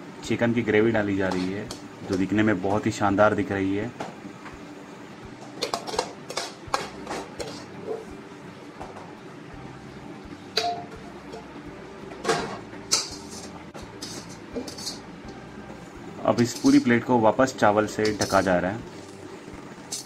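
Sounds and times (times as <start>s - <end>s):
steady background hum: 0.0s - 20.0s
steel ladle clinking on pans: 12.3s - 15.0s, 16.4s - 16.9s.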